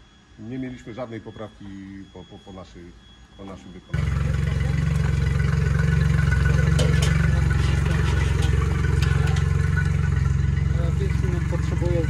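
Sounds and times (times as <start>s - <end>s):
outboard motor idling: 4.0s - 12.0s.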